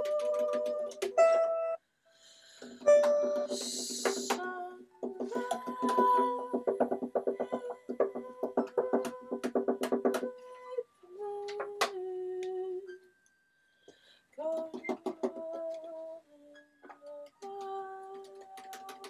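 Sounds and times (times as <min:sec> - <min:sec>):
plucked violin notes: 0:00.0 - 0:01.8, 0:02.8 - 0:06.5.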